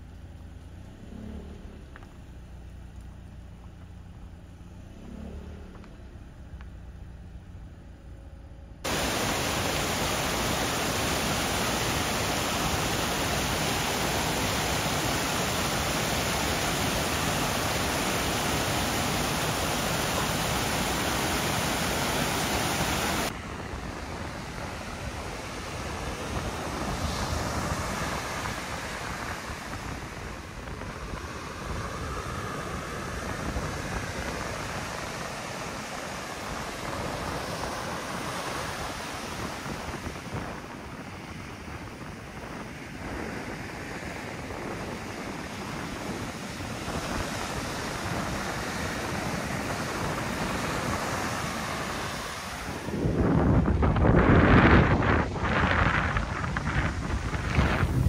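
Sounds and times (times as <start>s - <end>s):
ocean surf on a beach: 8.8s - 58.0s
stream rushing over stones: 8.9s - 41.1s, 44.2s - 58.0s.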